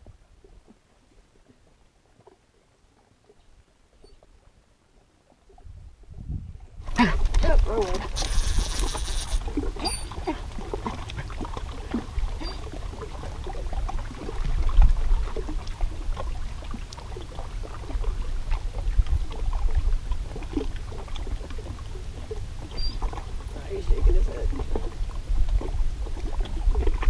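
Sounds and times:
small waves lapping against rocks: 0.0 - 27.0
wind rumbling on microphone: 5.3 - 27.0.

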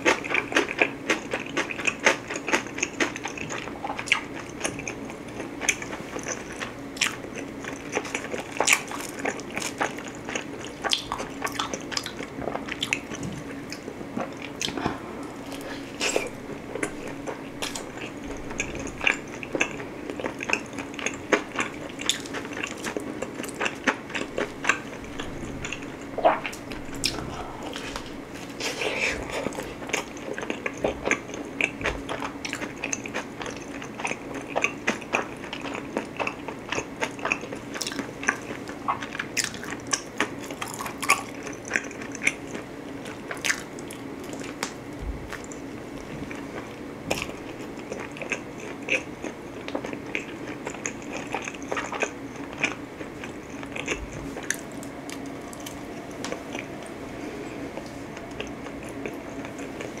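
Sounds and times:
person chewing pizza: 0.0 - 60.0.

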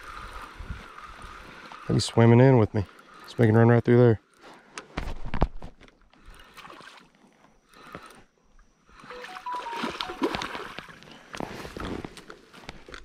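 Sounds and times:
fish splashing at the surface: 9.1 - 11.0.

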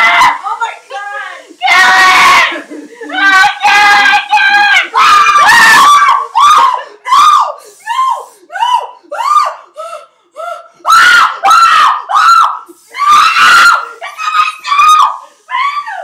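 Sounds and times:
woman screaming in fright: 3.2 - 9.6, 10.9 - 16.0.

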